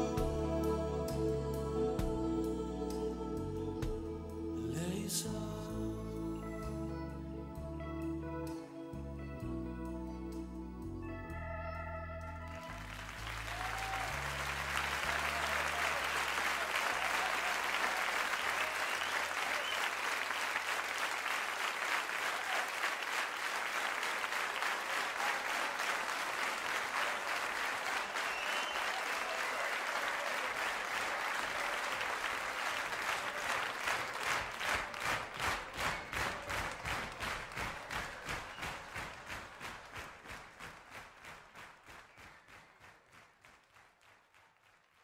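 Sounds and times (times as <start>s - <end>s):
held organ notes: 0.0s - 13.5s
audience applause: 12.4s - 45.0s.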